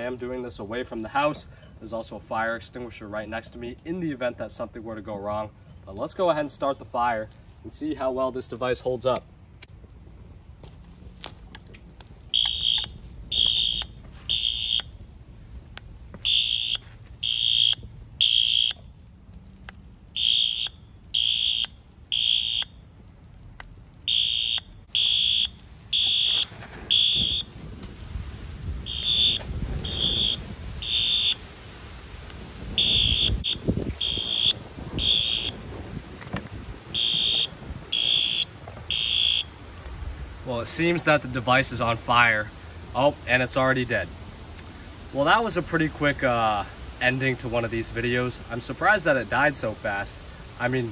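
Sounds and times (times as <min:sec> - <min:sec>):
fire crackling: 0:00.0 - 0:50.9
electronic alarm horn beeps: 0:12.3 - 0:14.9, 0:16.2 - 0:18.8, 0:20.2 - 0:22.7, 0:24.1 - 0:27.5, 0:28.8 - 0:31.4, 0:32.8 - 0:35.6, 0:36.9 - 0:39.5.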